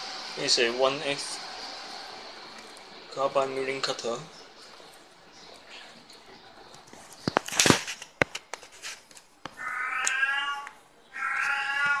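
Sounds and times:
animal cries: 0:09.6 - 0:12.0.

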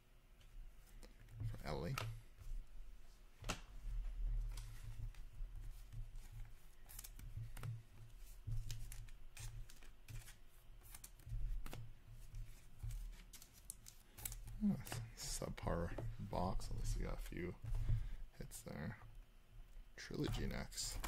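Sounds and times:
cards shuffled by hand: 0:04.5 - 0:16.0.

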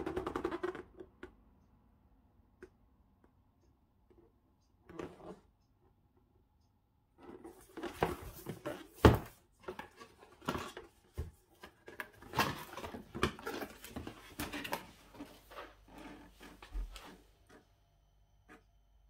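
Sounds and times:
objects being handled: 0:07.2 - 0:17.7.

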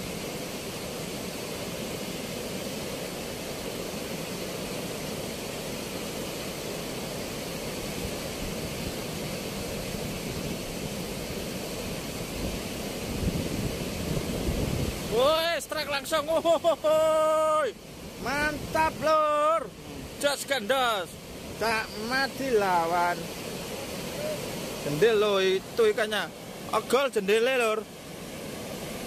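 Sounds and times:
water rushing through sluice gates: 0:00.0 - 0:29.0.

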